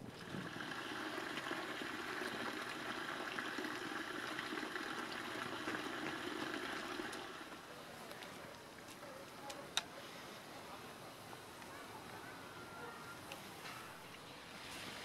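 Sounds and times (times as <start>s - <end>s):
stream water rushing: 0.0s - 7.8s.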